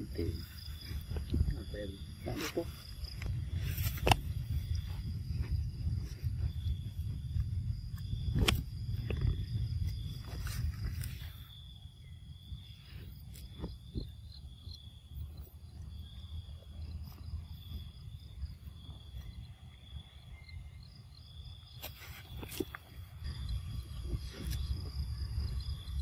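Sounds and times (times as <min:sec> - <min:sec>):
insects chirring: 0:00.0 - 0:26.0
low rumble: 0:02.9 - 0:18.9.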